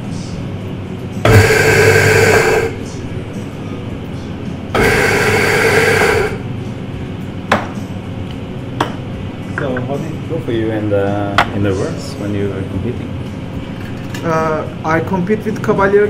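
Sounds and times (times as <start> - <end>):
electric coffee grinder running: 1.3 - 2.8, 4.8 - 6.4.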